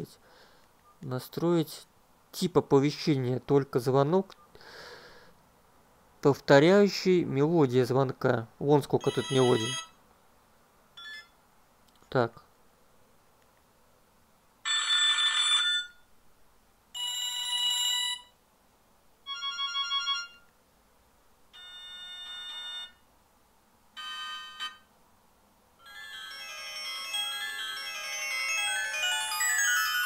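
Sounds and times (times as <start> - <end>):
phone ringtone melodies: 9.0 - 10.0, 11.0 - 11.3, 14.6 - 16.0, 17.0 - 18.3, 19.3 - 20.4, 21.6 - 23.0, 24.0 - 24.9, 25.8 - 30.0.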